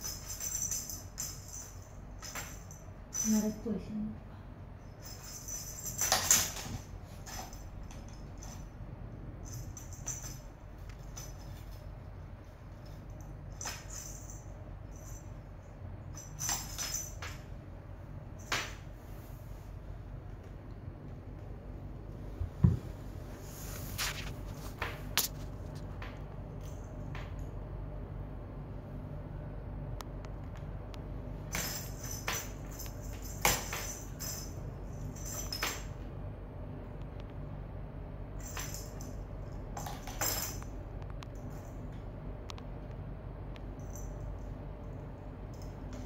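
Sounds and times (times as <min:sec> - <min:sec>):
small bell jingling: 0:00.0 - 0:03.8, 0:04.9 - 0:08.8, 0:09.4 - 0:11.9, 0:12.8 - 0:17.4, 0:31.5 - 0:36.0, 0:38.4 - 0:40.7
steady low hum: 0:00.0 - 0:46.0.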